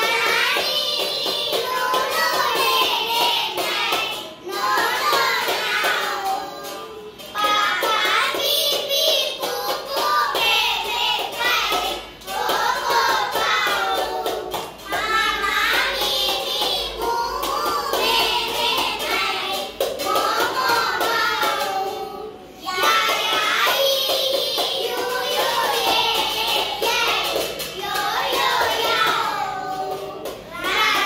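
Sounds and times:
children singing: 0.0 - 31.0.

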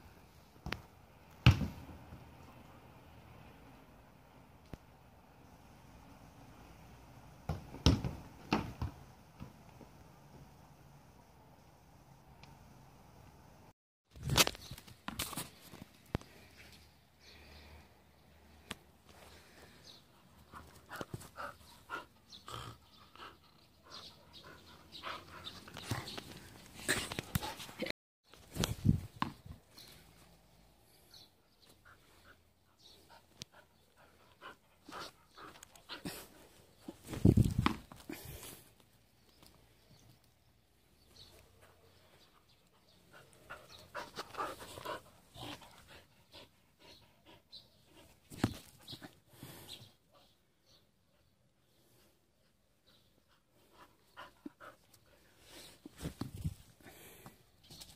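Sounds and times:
dog panting: 42.8 - 48.2, 53.3 - 55.2.

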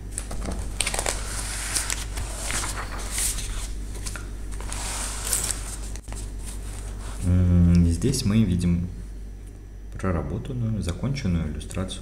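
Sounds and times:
steady low hum: 0.0 - 12.0
paper rustling: 0.2 - 7.2.

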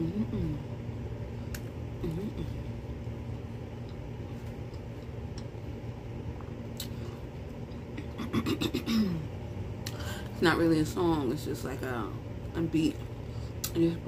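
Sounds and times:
low background rumble: 0.0 - 14.0
person humming: 2.0 - 2.6.

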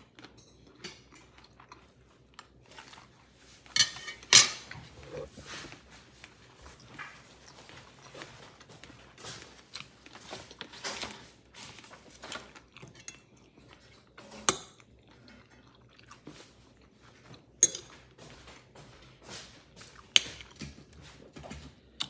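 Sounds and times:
person chewing: 0.1 - 3.3, 4.7 - 10.7, 11.8 - 18.2
fork scraping and clinking dish: 3.7 - 5.5.

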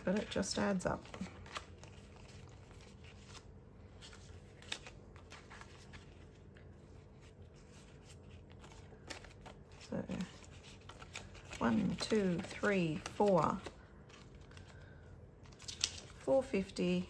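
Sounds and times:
banknotes and envelopes rustling: 0.0 - 17.0
faint steady hum: 0.0 - 17.0.

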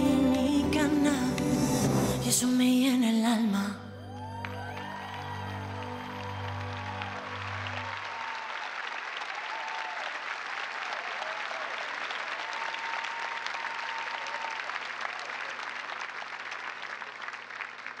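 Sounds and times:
steady high tone: 3.7 - 8.0
audience applauding: 4.1 - 18.0.

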